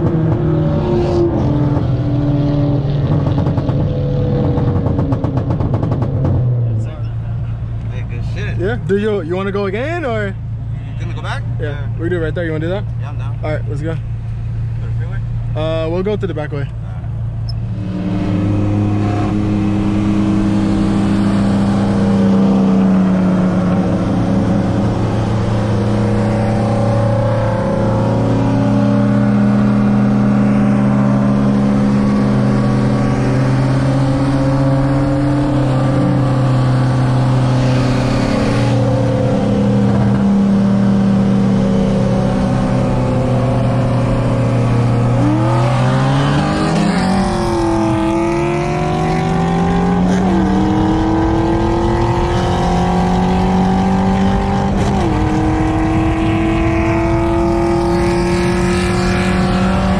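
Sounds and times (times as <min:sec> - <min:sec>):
car engine from inside cabin: 0:13.8 - 0:59.9.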